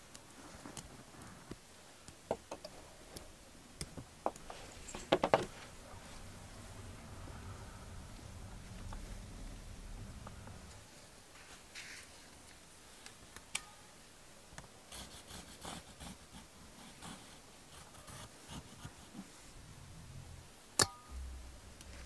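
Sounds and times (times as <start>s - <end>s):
sharp clicks with metallic ring: 20.8s - 21.1s.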